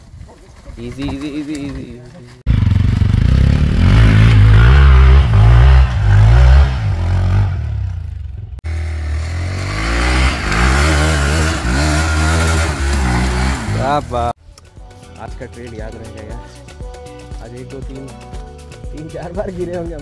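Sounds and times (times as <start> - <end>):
motorcycle engine revving: 2.5 - 14.4.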